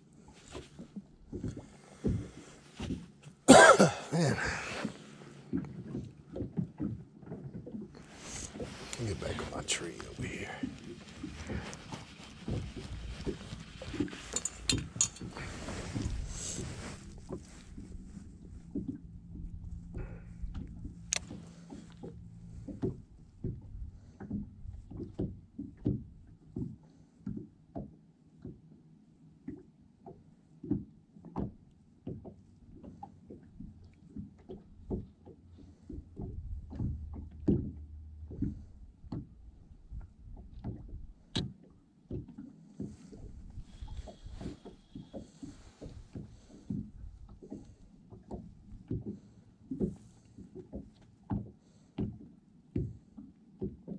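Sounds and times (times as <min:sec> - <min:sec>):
waves slapping boat hull: 0:00.0 - 0:14.7, 0:15.4 - 0:27.5, 0:30.6 - 0:53.9.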